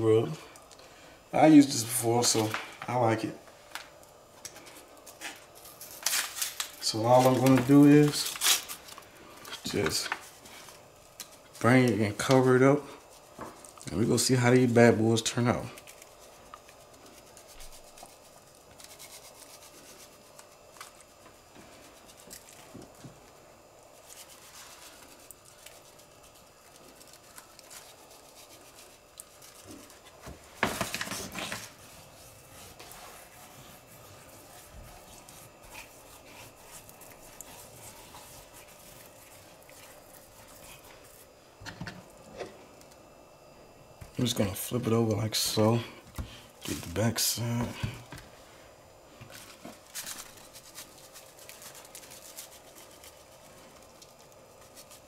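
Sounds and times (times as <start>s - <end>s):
foil packet rustling: 4.6s - 12.8s, 24.0s - 33.0s, 49.3s - 55.0s.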